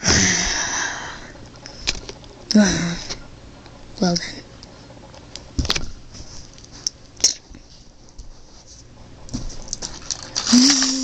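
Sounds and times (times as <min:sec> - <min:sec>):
breathy vocal hum: 0:00.0 - 0:01.4, 0:02.5 - 0:03.3.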